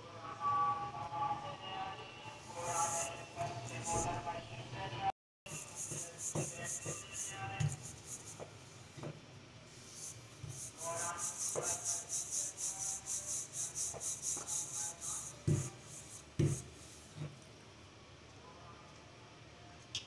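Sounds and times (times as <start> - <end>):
rolling pin rolling dough: 2.5 - 4.2, 5.5 - 9.2, 9.8 - 17.3.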